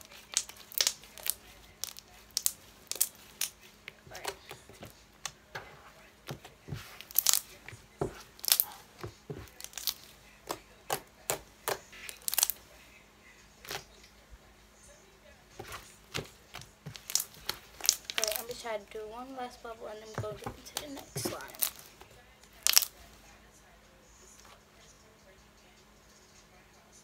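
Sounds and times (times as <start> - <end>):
slime clicking and popping: 0.0 - 4.5, 7.0 - 7.5, 8.4 - 8.8, 9.4 - 12.6, 15.6 - 18.6, 20.4 - 21.9, 22.6 - 23.0.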